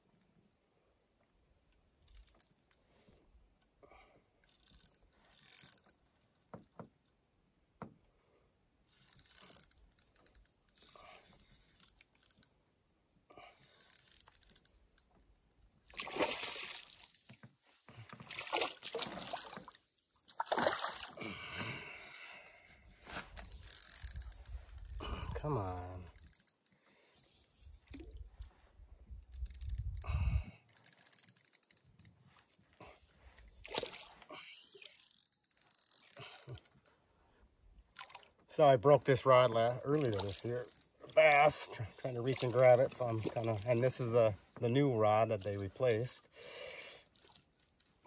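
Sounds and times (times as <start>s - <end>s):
water splashing: 15.9s - 17.1s, 18.2s - 21.4s, 33.6s - 34.3s, 39.8s - 44.0s.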